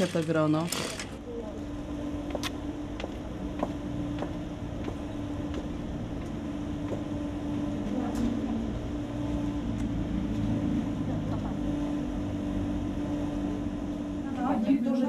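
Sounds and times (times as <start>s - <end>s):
footsteps on paving: 2.2s - 7.2s.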